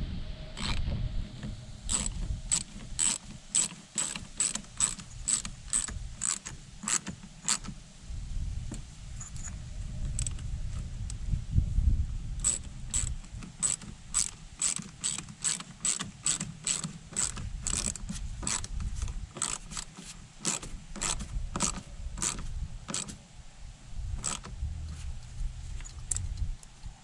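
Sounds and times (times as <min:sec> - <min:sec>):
hand ratchet clicking: 0:00.6 - 0:00.8, 0:01.9 - 0:07.7, 0:12.4 - 0:23.2, 0:24.2 - 0:24.5.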